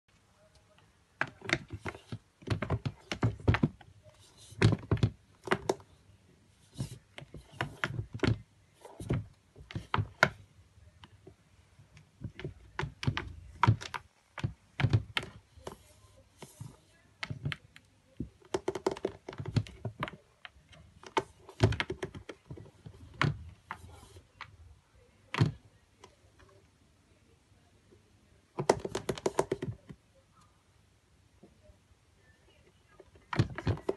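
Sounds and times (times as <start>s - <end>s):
tapping and scratching on plastic: 0.6s - 5.9s, 6.6s - 10.4s, 12.0s - 24.6s, 25.3s - 26.5s, 28.6s - 30.0s, 33.0s - 33.9s.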